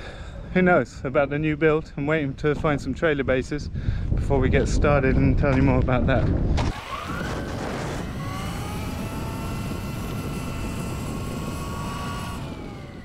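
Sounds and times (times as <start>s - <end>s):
electric bike motor whining: 6.6s - 13.0s.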